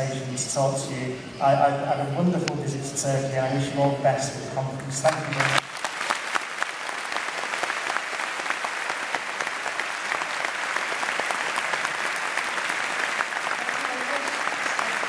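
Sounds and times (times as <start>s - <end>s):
large audience applauding: 5.0s - 15.0s.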